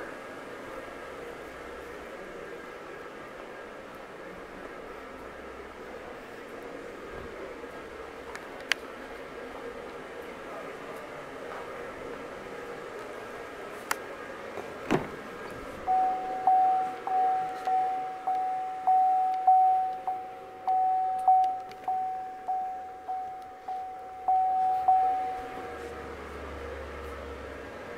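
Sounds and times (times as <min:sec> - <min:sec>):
door-open warning chime dinging: 0:15.8 - 0:26.0.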